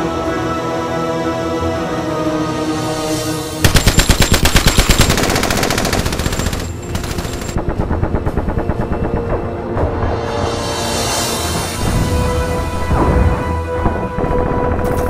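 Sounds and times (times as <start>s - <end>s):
soundtrack music: 0.0s - 15.0s
machine gun firing: 3.6s - 9.3s.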